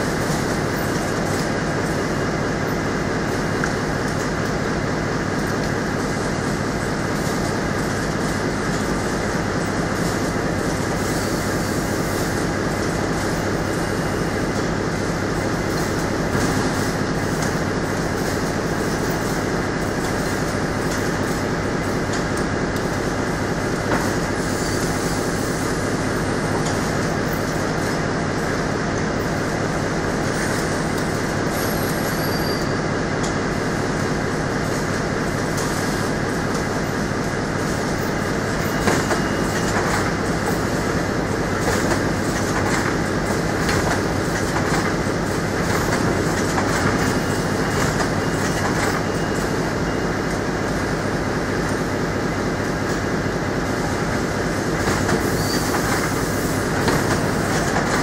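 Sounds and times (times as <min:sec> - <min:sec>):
fast mechanical clatter: 0:41.6 - 0:49.0.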